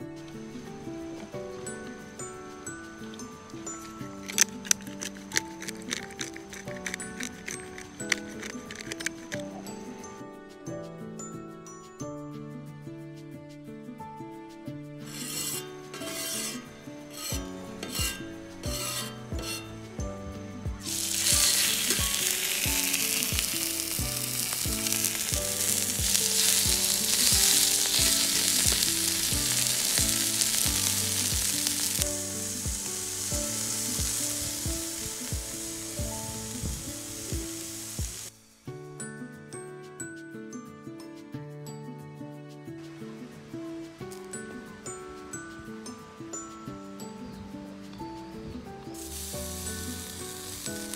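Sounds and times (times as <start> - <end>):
background music with steady beat: 0.0 - 50.9
steaks sizzling on griddle: 15.1 - 20.0, 20.8 - 38.3, 49.0 - 50.9.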